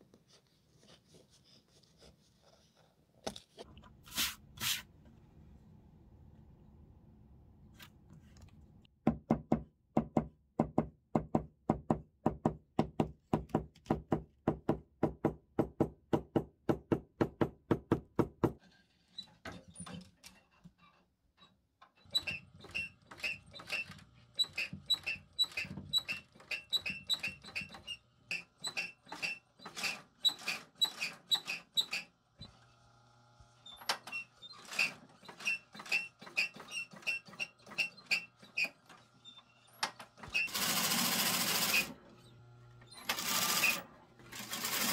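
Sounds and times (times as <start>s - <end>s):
sewing machine needle strokes: 40.4s - 42.0s, 43.0s - 44.9s
sewing machine motor humming: 40.5s - 44.9s.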